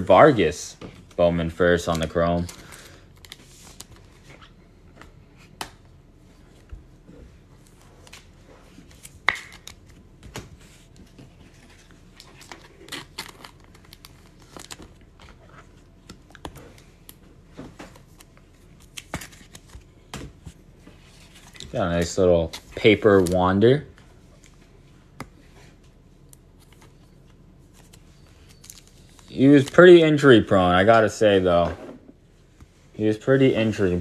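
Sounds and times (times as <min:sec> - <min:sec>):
trading cards clicking and rustling: 0:26.3 - 0:30.3.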